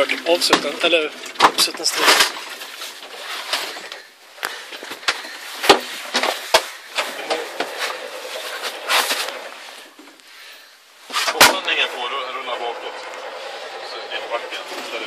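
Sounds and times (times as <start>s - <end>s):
rustling: 1.1s - 11.5s.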